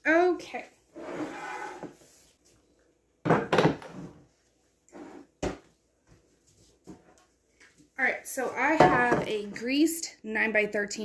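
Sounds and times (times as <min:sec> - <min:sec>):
skillet scraping: 0:01.0 - 0:02.1.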